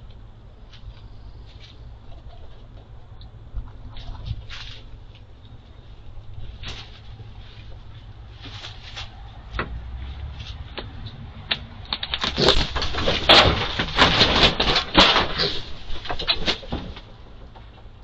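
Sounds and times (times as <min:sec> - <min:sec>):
scratches and rustles on straw: 0:06.4 - 0:09.4
louder scrapes and rustles: 0:08.3 - 0:09.2, 0:12.2 - 0:17.1.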